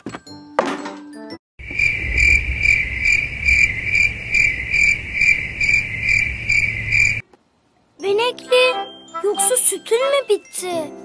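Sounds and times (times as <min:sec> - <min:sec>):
cricket chirping trill: 0:01.6 - 0:07.2
low rumble: 0:01.6 - 0:07.2.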